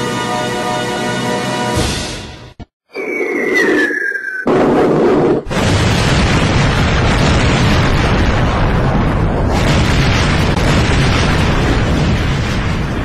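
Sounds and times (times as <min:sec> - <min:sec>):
explosion roaring rumble: 0:04.5 - 0:13.0.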